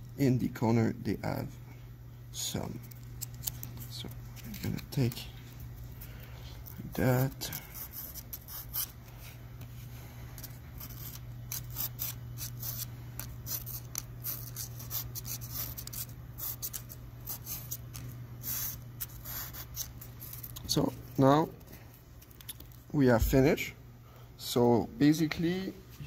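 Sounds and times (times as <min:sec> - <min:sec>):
steady low hum: 0:00.0 - 0:26.0
scraping solder off chip: 0:10.4 - 0:20.6.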